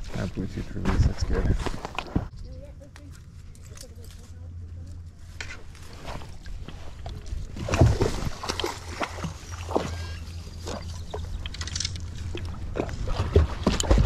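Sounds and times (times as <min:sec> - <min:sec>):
water sloshing: 0:04.3 - 0:14.0.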